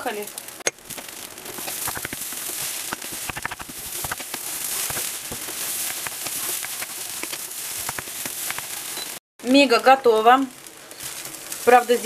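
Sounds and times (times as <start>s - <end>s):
crumbs sizzling in a pan: 0.0s - 12.0s
wooden spatula stirring: 0.8s - 9.2s.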